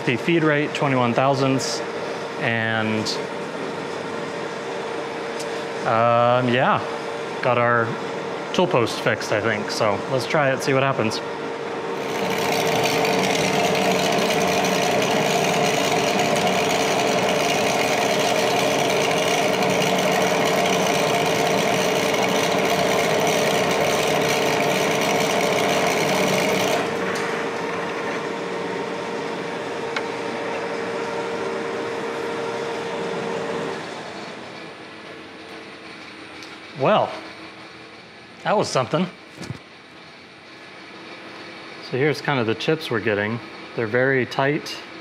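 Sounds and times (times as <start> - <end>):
lathe spindle hum: 0.0 - 38.4
lathe cutting steel: 11.8 - 29.0.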